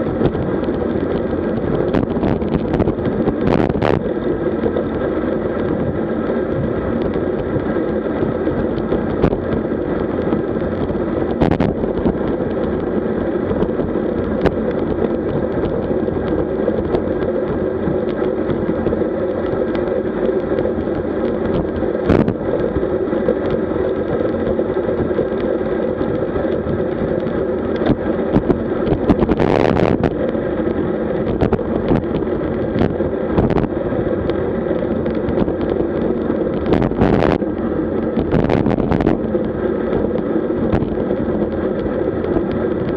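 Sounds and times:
tyre and road noise: 0.0s - 42.9s
wind rushing over microphone: 0.0s - 42.9s.

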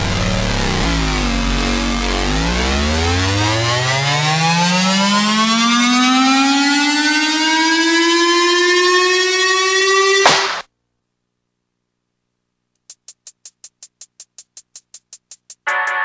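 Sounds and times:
siren-like tone winding up: 0.3s - 10.6s.

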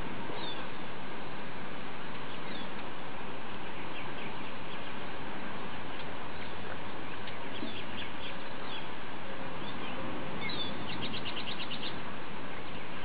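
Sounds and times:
small songbirds chirping: 0.0s - 13.0s
steady background hiss: 0.0s - 13.0s
bird trill: 2.3s - 2.7s, 9.6s - 12.0s.

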